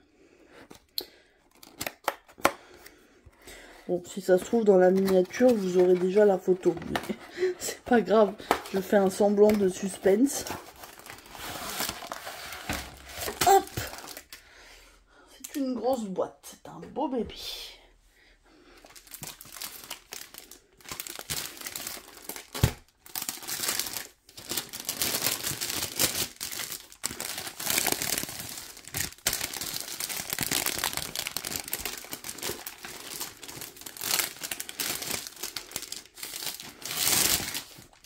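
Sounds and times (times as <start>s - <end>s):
plastic sleeve crinkling: 4.1s - 14.4s, 18.8s - 38.0s.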